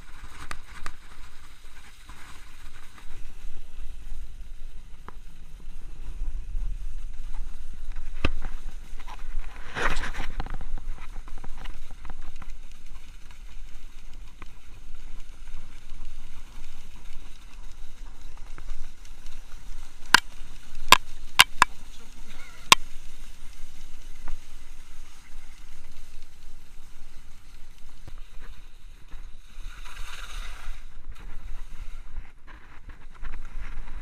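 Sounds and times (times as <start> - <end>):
skis scraping over snow: 0.0 - 34.0.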